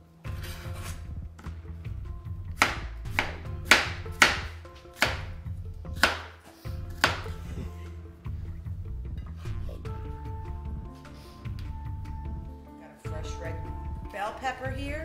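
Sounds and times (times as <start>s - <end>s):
background music: 0.0s - 15.0s
knife chopping on cutting board: 2.6s - 7.4s.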